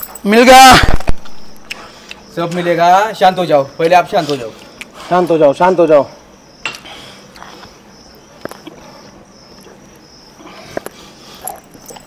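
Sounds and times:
crickets chirping: 0.0 - 12.0.

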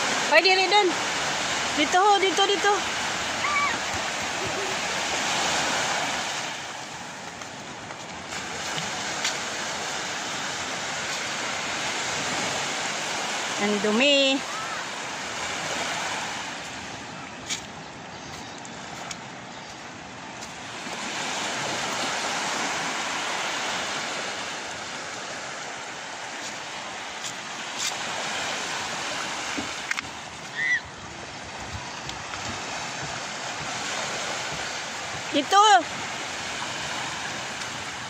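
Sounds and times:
sea waves washing on shore: 0.0 - 38.0
high-pitched cry: 3.4 - 3.8, 30.5 - 30.9.

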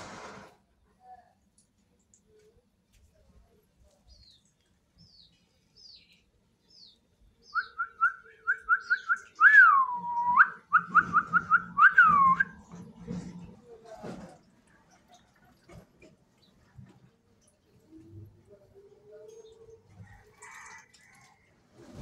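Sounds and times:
whistled notes: 7.5 - 12.6.

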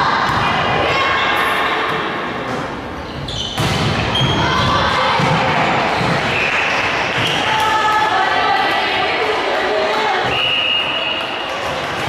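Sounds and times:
crowd shouting and cheering: 0.0 - 2.5, 3.9 - 12.0
volleyball hitting wooden court: 3.5 - 8.0.

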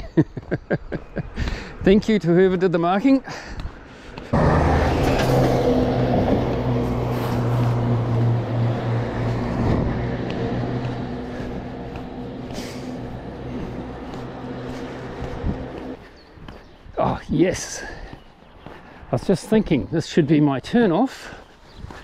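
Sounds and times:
road noise: 0.4 - 22.0
truck engine humming: 4.4 - 16.1.

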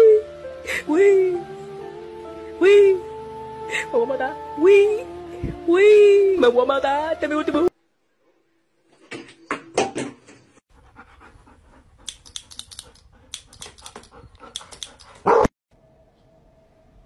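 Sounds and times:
dog panting: 10.7 - 15.4.

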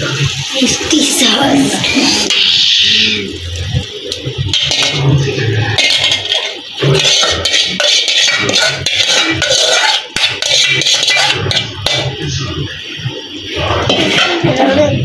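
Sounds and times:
food sizzling in frying pan: 0.0 - 15.0
metal ladle clinking on pan: 5.8 - 12.1.

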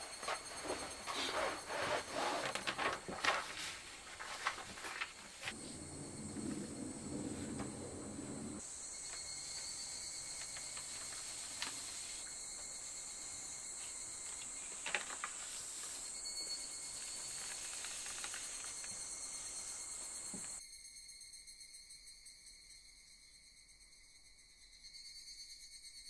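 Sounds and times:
insects chirring: 0.0 - 21.2
low noise: 4.1 - 8.7.

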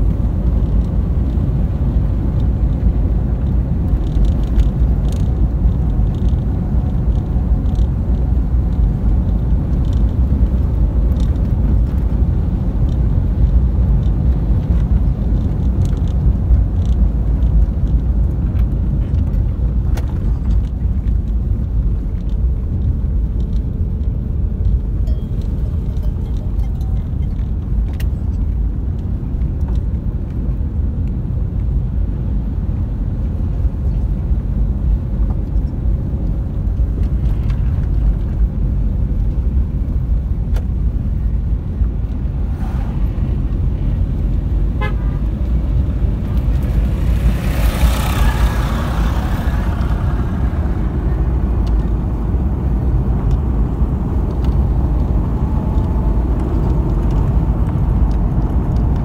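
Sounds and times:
vehicle rumbling: 0.0 - 59.0
rush of noise: 41.0 - 54.5.

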